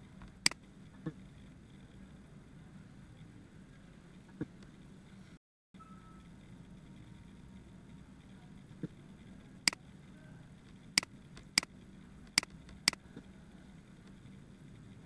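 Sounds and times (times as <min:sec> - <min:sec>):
faint low hum: 0:00.0 - 0:15.0
computer mouse clicking: 0:10.6 - 0:13.3.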